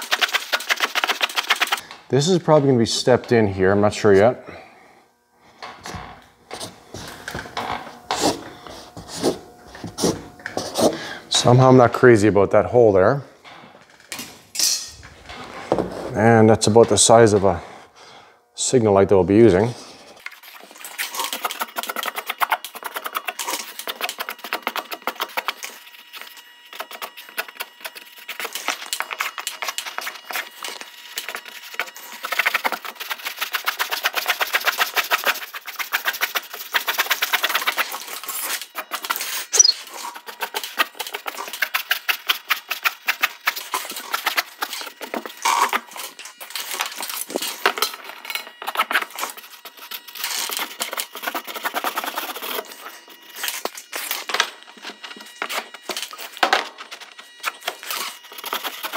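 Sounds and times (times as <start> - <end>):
marker scratching and squeaking on paper: 0.0 - 1.8, 20.4 - 46.9, 48.6 - 54.2, 57.4 - 58.9.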